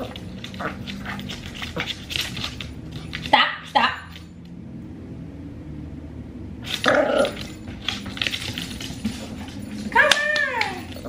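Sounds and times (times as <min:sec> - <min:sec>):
paws clicking on hardwood floor: 0:00.0 - 0:03.4, 0:06.7 - 0:11.0.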